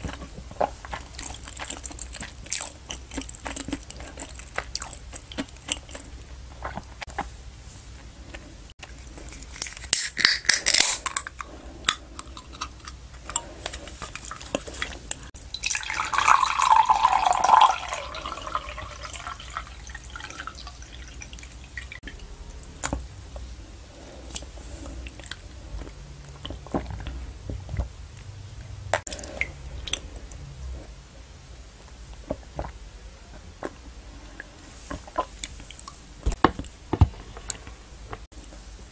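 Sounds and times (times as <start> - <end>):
can opening hiss: 9.6 - 11.1
person sipping: 10.8 - 23.0, 29.0 - 30.4
tea pouring into glass mug: 15.5 - 21.8.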